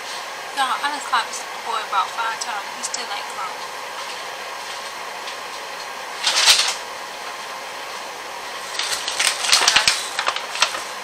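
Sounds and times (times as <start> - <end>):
steady background hum: 0.0 - 11.0
paper bag rustling: 6.2 - 6.9, 8.5 - 11.0.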